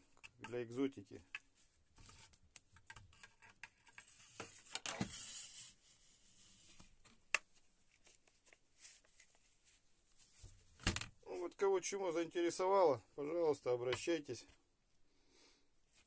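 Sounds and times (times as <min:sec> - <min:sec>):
rustling rub: 0:07.9 - 0:10.7.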